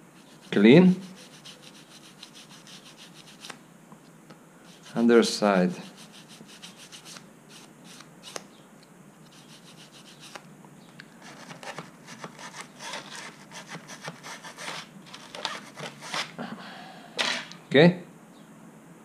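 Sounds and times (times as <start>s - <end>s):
toothbrush scrubbing: 0.2s - 3.5s, 5.8s - 8.0s, 9.3s - 10.4s.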